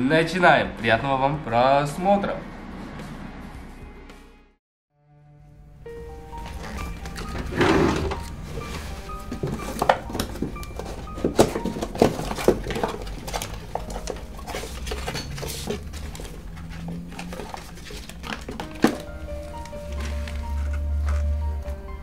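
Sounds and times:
quiet background music: 0.0 - 22.0
cardboard box rummaging: 6.4 - 21.2
wooden drawer pulled open: 6.5 - 19.0.

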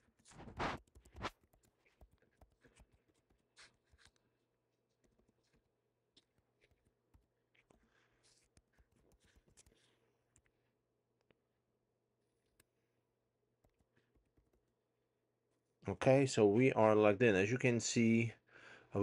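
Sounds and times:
computer keyboard typing: 0.7 - 3.0.

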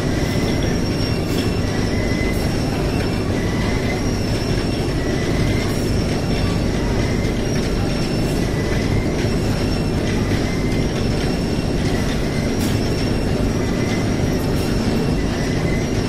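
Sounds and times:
conveyor belts rumbling over rollers: 0.0 - 16.0
high squeal: 0.0 - 16.0.

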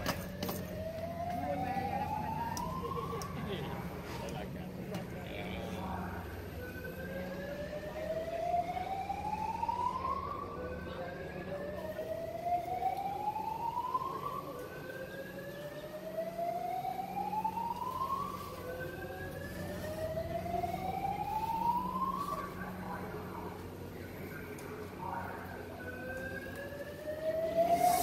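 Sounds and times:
rising siren: 0.0 - 28.0
steady low hum: 0.0 - 28.0.

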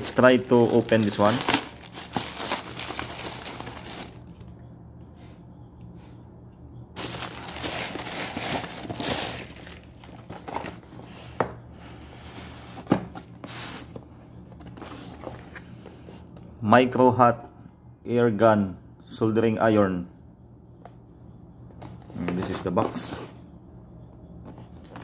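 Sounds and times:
cardboard box crackling: 0.0 - 4.3, 7.0 - 10.9
plastic bag crinkling and tearing: 0.0 - 4.5, 7.0 - 10.3.

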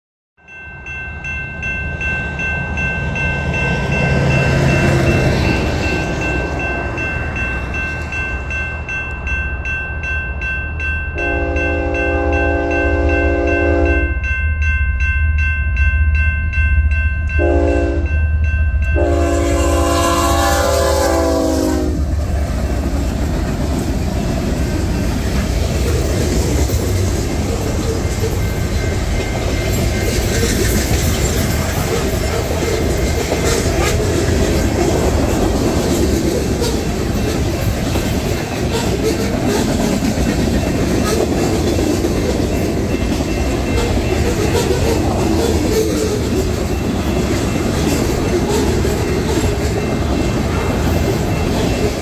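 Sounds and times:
train rumbling over rails: 0.4 - 52.0
train air horn: 11.2 - 14.1, 17.4 - 18.1, 19.0 - 22.1.

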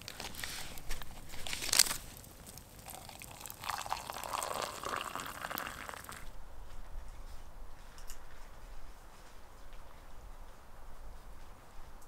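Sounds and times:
hot water pouring into mug: 2.5 - 6.3.

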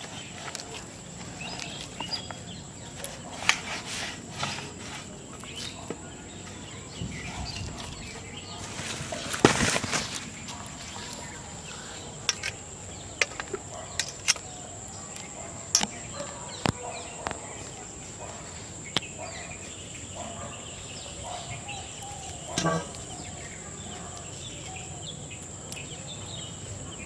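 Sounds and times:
dough squelching and scraping: 0.0 - 12.7.

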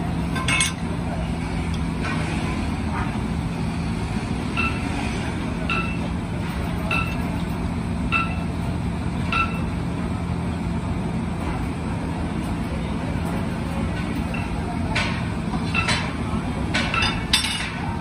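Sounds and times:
low machine hum: 0.0 - 18.0
ringing metallic pings: 8.1 - 8.5, 9.3 - 9.7.

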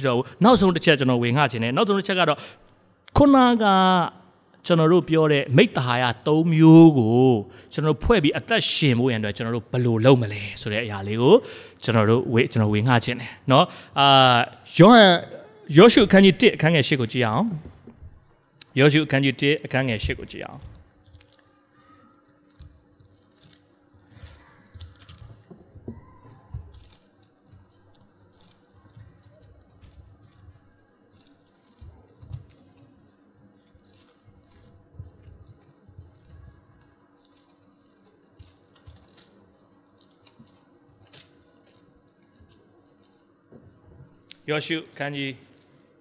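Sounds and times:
pages being turned: 20.2 - 43.4, 44.0 - 45.8.

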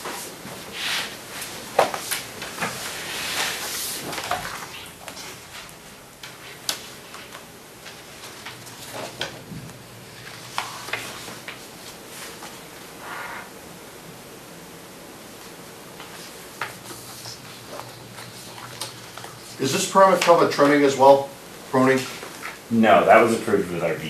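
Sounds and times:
paper pages rustling and turning: 10.1 - 12.6, 15.4 - 20.9.

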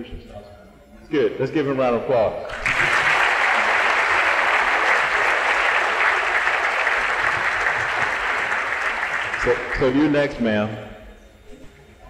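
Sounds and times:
large audience applauding: 2.5 - 10.2.

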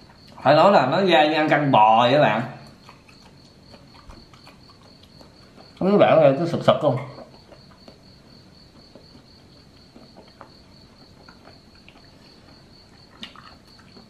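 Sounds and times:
cricket chirping: 0.0 - 14.0
man chewing soft clicks: 2.6 - 5.8, 7.1 - 14.0.

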